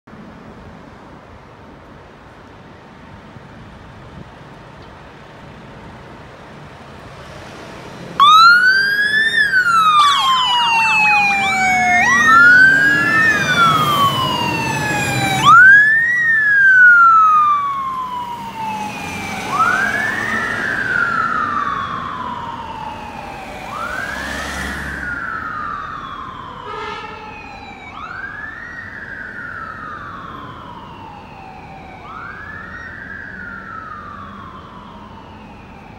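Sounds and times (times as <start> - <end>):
city traffic: 0.0 - 35.9
emergency vehicle sirens wailing: 7.6 - 35.9
siren yelps: 8.2 - 35.9.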